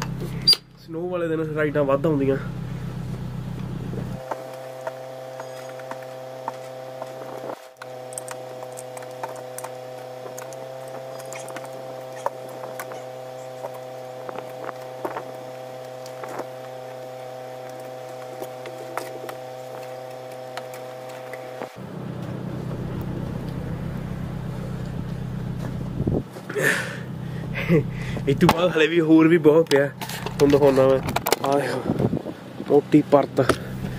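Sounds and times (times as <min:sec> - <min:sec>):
steady low hum: 0:00.0 - 0:33.9
snow brush scraping: 0:04.2 - 0:21.8
low rumble: 0:21.1 - 0:26.4.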